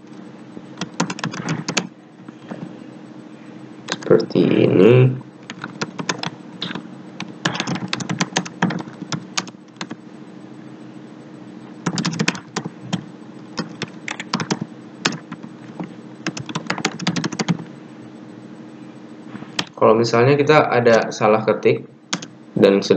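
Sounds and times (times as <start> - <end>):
faint steady hum: 0.0 - 22.9
computer keyboard typing: 0.8 - 2.6, 3.9 - 4.1, 5.4 - 10.0, 11.8 - 17.7, 20.9 - 22.3.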